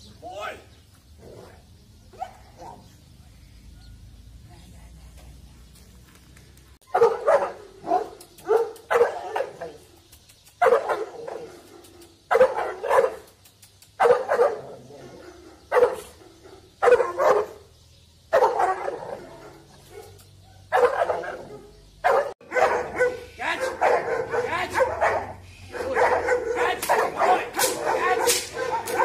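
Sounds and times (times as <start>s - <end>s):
large dog barking: 6.8s - 9.8s, 10.6s - 13.3s, 14.0s - 17.7s, 18.3s - 29.0s.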